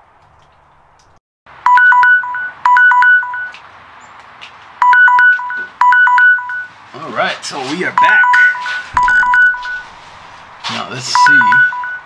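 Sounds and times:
short electronic alarm beeps: 1.7s - 3.6s, 4.8s - 6.7s, 8.0s - 9.9s, 11.1s - 12.0s.

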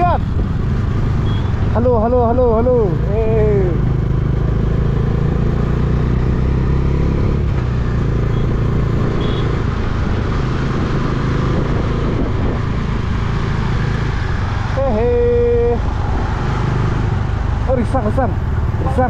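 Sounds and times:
motorcycle engine cruising: 0.0s - 19.0s
wind noise on microphone: 9.6s - 14.5s.

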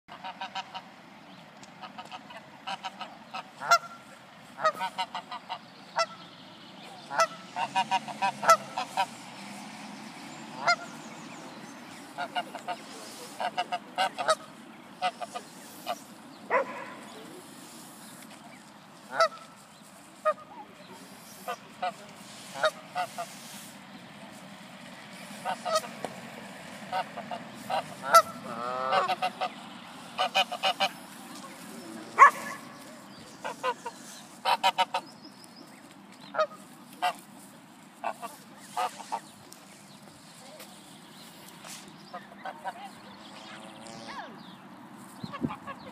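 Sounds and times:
goose honking: 0.1s - 0.9s, 1.8s - 6.3s, 7.0s - 9.2s, 10.5s - 11.0s, 12.0s - 17.3s, 19.0s - 23.8s, 25.2s - 35.2s, 36.3s - 37.3s, 38.0s - 39.4s, 42.1s - 44.3s.

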